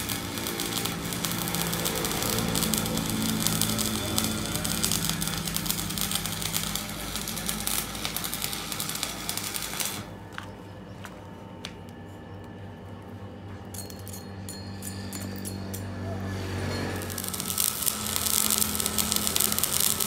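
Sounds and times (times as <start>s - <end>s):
welding arc crackling: 0.0s - 10.5s, 16.8s - 20.0s
low hum: 0.0s - 20.0s.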